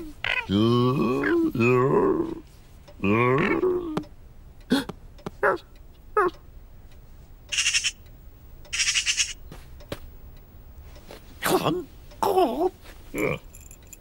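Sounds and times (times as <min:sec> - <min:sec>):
cartoon magpie call: 0:07.5 - 0:08.0, 0:08.7 - 0:09.4.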